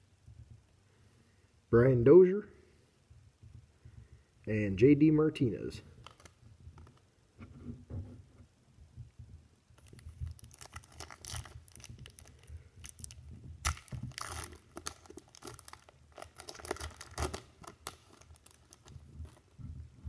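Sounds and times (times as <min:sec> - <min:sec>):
foil wrapper tearing and crinkling: 0:06.0 - 0:06.9, 0:09.8 - 0:19.5.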